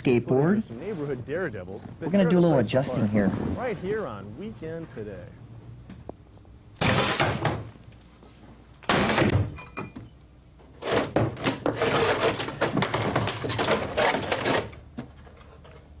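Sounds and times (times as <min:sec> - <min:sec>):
glass shards crunching and clattering: 0:11.7 - 0:14.2.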